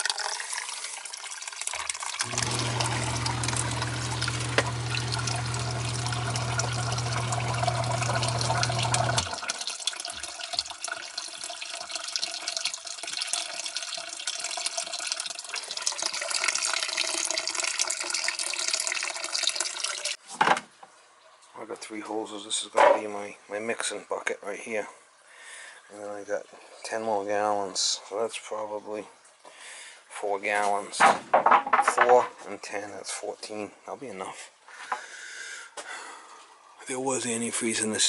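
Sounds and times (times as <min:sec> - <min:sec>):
water pouring into a pit: 0:00.0 - 0:20.2
pump motor humming: 0:02.2 - 0:09.7.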